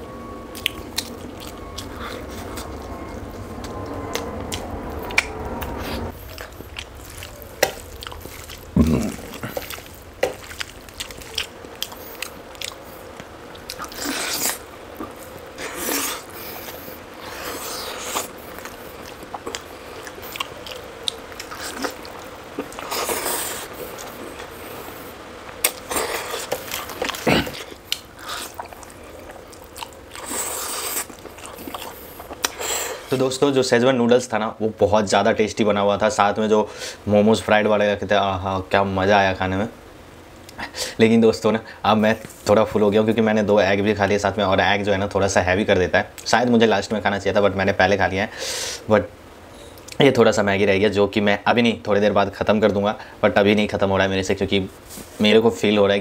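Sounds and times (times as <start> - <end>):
low steady hum: 0.0 - 56.0
person chewing food: 0.2 - 33.1.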